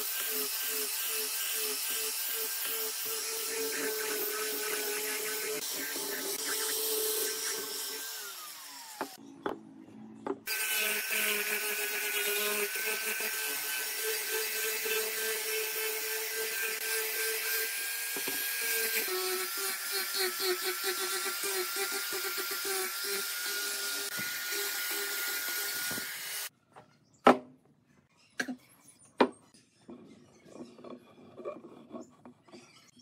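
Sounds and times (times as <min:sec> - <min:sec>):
angle grinder sanding wood: 0:00.0 - 0:09.2, 0:10.5 - 0:26.5.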